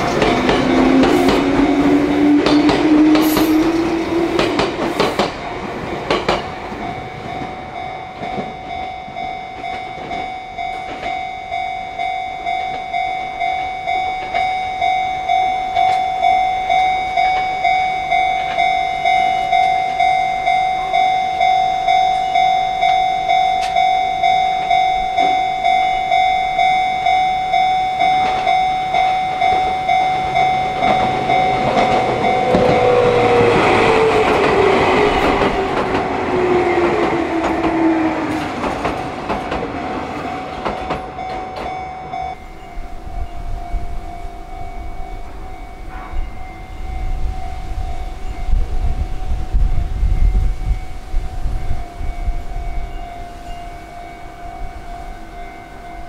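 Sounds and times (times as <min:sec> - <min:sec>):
level crossing bell ringing: 0:00.0 - 0:04.6, 0:06.4 - 0:56.0
train motor whine: 0:00.0 - 0:05.6, 0:28.2 - 0:39.5
train wheels clicking on rail joints: 0:00.0 - 0:21.5, 0:22.1 - 0:46.5.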